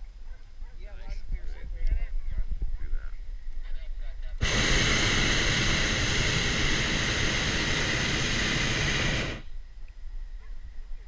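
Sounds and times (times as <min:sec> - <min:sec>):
propane burner blast: 0:04.4 - 0:09.5.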